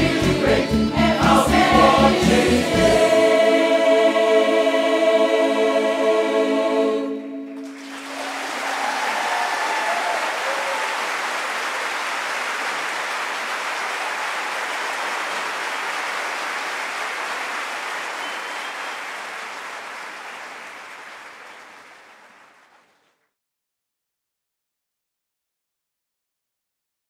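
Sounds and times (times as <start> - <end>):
audience applauding: 7.5 - 23.2.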